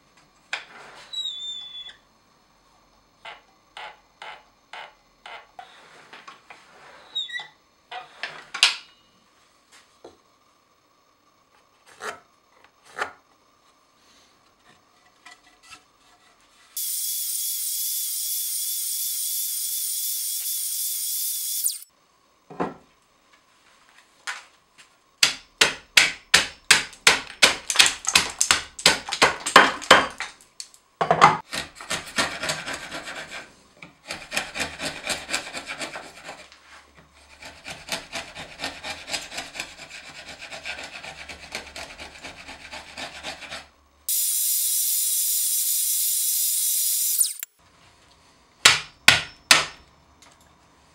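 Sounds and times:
chisel scraping wood: 31.5s - 36.6s, 37.2s - 43.7s
steady high hiss: 44.1s - 47.6s.

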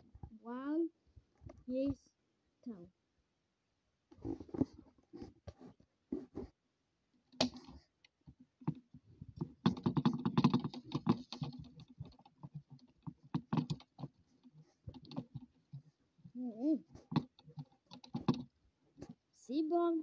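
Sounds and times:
hard plastic clicking and clattering: 7.3s - 16.0s, 16.9s - 19.2s.

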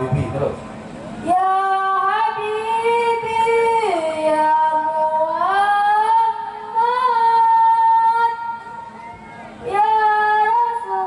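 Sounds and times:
boy singing into a microphone: 1.2s - 8.6s, 9.7s - 11.0s.

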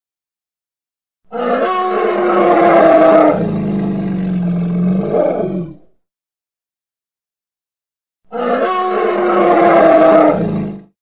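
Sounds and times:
elephant roar: 1.3s - 5.8s, 8.3s - 10.9s.

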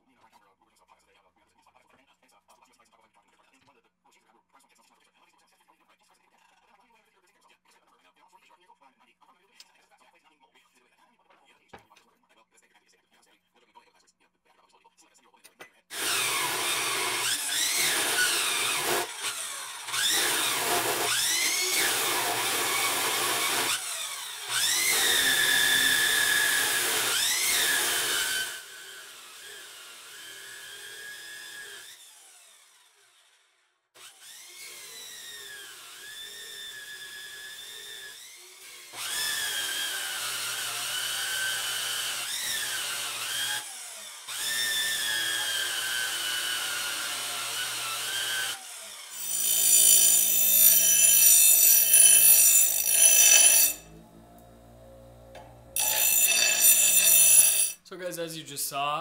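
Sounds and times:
chop saw cutting steel: 15.9s - 33.4s, 34.0s - 54.0s, 55.4s - 57.8s.

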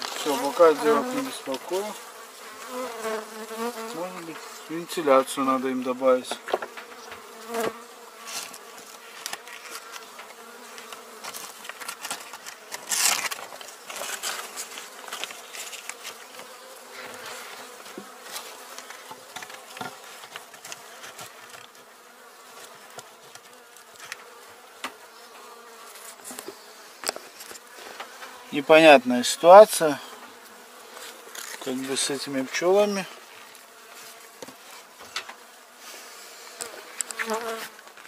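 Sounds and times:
bees humming: 0.0s - 37.8s
wooden hive frames clicking: 9.2s - 16.5s, 18.0s - 21.8s
rustling scrape: 11.2s - 16.2s.

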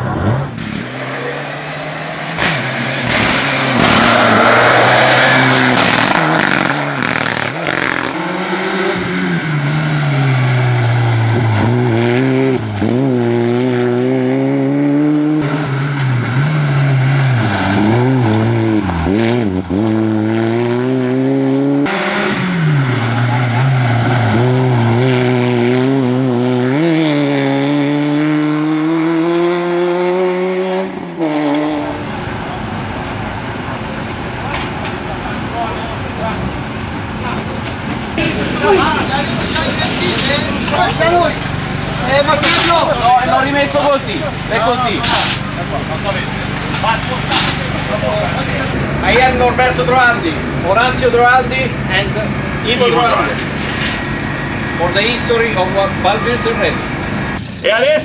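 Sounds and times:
car passing close: 0.0s - 57.4s
rally car engines accelerating: 0.0s - 58.0s.

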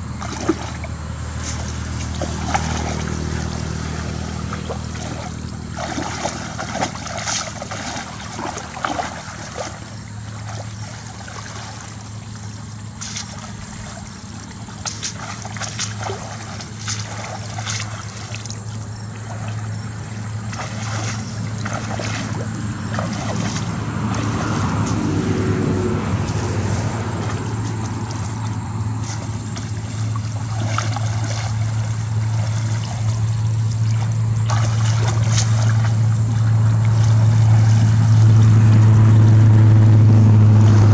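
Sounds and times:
muddy water sloshing: 0.0s - 39.4s
low motor hum: 0.0s - 40.9s.

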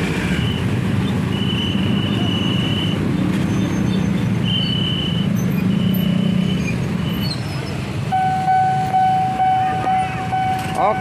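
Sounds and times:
traffic engines running: 0.0s - 11.0s
electronic alarm tone: 8.1s - 11.0s.

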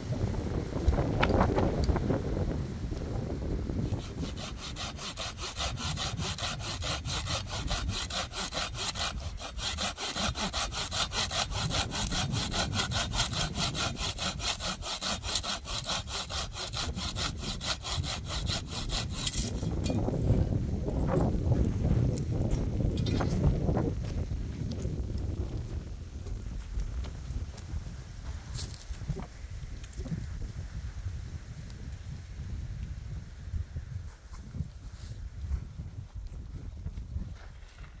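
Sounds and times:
hand saw cutting wood: 3.8s - 20.2s.

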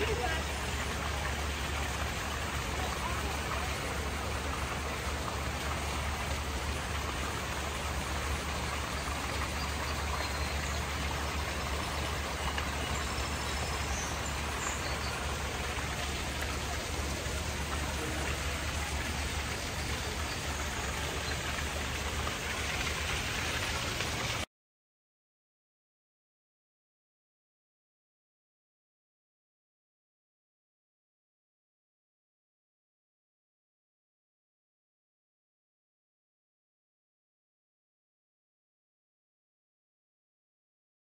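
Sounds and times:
falling water hissing: 0.0s - 24.5s.

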